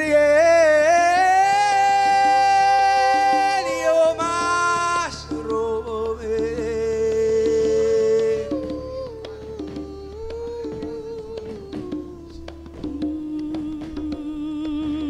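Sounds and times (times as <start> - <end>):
band backing: 0.0 - 15.0
man singing into microphone: 0.0 - 15.0.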